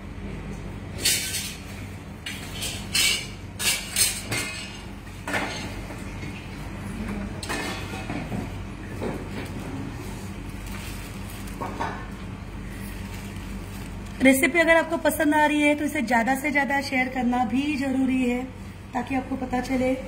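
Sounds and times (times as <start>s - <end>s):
steady low hum: 0.0s - 20.0s
steel dishes and utensils clattering: 2.2s - 5.8s.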